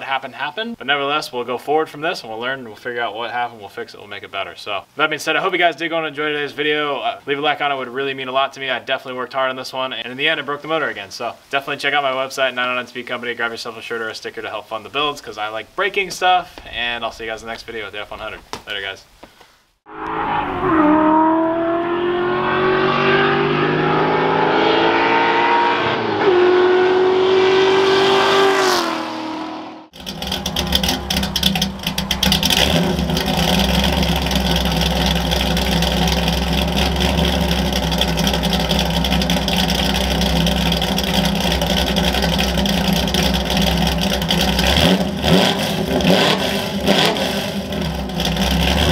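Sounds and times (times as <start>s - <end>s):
vee eight engine accelerating hard: 19.9s - 48.9s
pulsing engine rumble: 29.3s - 48.9s.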